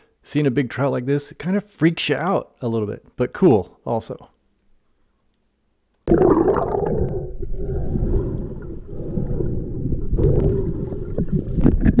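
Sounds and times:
underwater river rumble: 0:06.1 - 0:12.0
water gurgling: 0:06.1 - 0:12.0.

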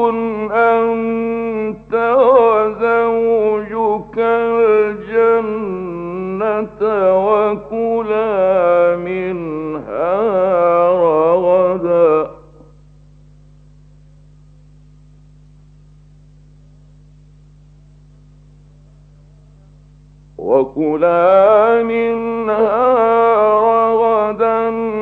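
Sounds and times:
man chanting melodically: 0:00.0 - 0:12.7, 0:20.4 - 0:25.0
faint low hum: 0:00.0 - 0:25.0.

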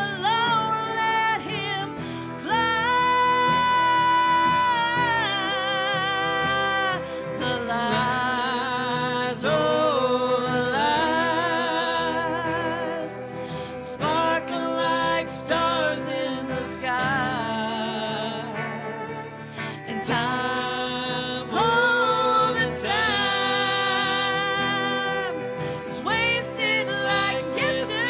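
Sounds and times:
country ballad by small band: 0:00.0 - 0:28.0
fiddle melody: 0:00.0 - 0:28.0.

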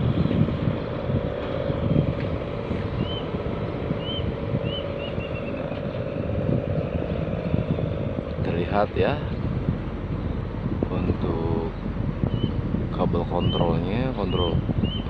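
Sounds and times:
steady low hum: 0:00.0 - 0:15.0
wind buffeting microphone: 0:00.0 - 0:15.0
bird chirping: 0:03.0 - 0:03.3, 0:04.0 - 0:06.3, 0:12.3 - 0:12.6, 0:13.2 - 0:15.0.

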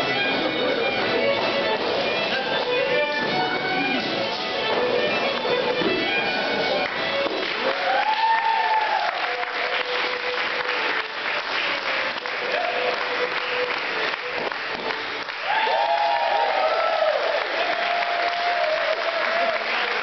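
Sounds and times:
audience applauding: 0:06.8 - 0:20.0
whoops of cheering: 0:07.6 - 0:09.4, 0:15.4 - 0:19.7.

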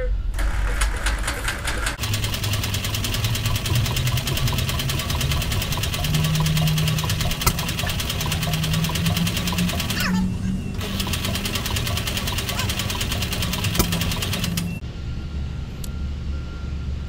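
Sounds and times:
engine cranking by starter: 0:00.3 - 0:14.8
sharp click: 0:13.7 - 0:14.7.

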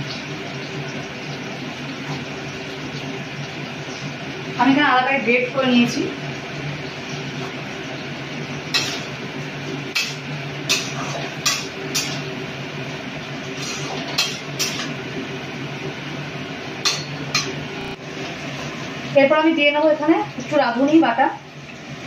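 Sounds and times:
metal spatula scraping pan: 0:08.7 - 0:09.2, 0:09.9 - 0:12.4, 0:13.4 - 0:15.0, 0:16.8 - 0:18.0.

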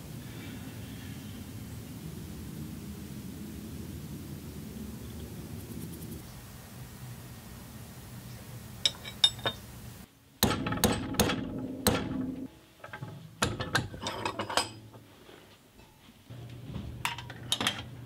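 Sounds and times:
hammer striking metal rod: 0:10.4 - 0:15.0.

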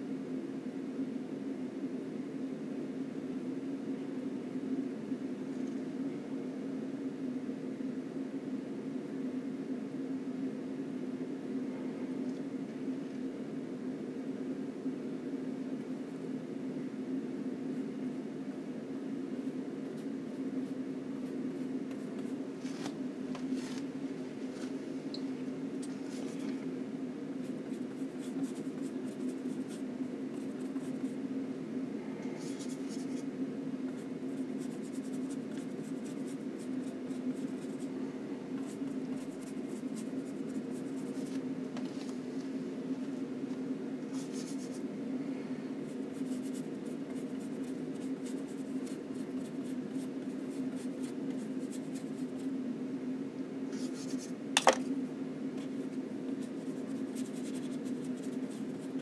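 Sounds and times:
steady low hum: 0:00.0 - 0:59.0
paintbrush scratching on panel: 0:44.1 - 0:44.8, 0:53.7 - 0:54.4, 0:55.6 - 0:59.0.

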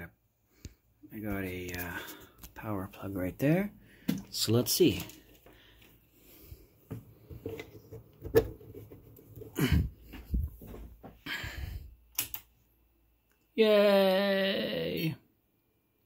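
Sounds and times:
breathing close to microphone: 0:05.4 - 0:06.8, 0:11.2 - 0:12.0
sharp click: 0:12.1 - 0:12.5.

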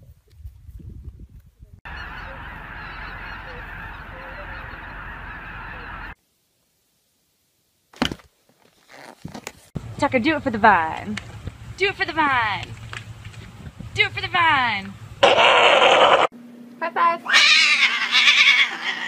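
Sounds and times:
flock of geese honking: 0:01.9 - 0:06.2.

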